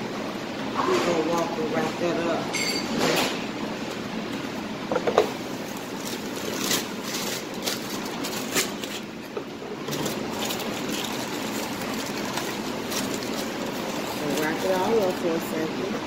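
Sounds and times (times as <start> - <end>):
ventilation fan hum: 0.0 - 16.0
aluminium foil crinkling: 5.4 - 15.9.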